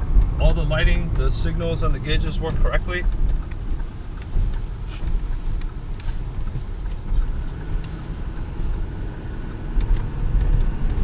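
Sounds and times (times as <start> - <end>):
truck engine and tyres rumbling: 0.0 - 11.0.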